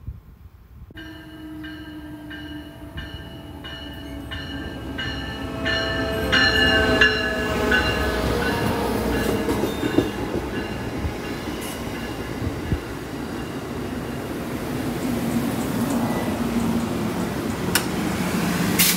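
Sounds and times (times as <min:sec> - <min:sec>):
locomotive bell ringing: 0:01.0 - 0:14.8
passenger cars rumbling and clicking: 0:04.0 - 0:18.9.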